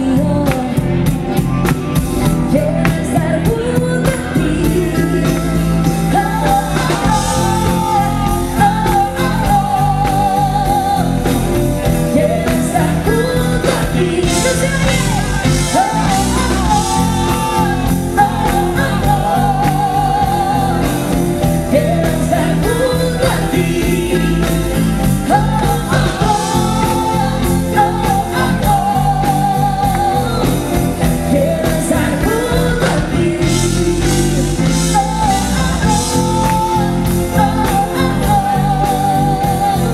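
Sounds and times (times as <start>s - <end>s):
woman singing: 0.0s - 1.4s, 2.2s - 39.9s
pop-rock band playing: 0.0s - 39.9s.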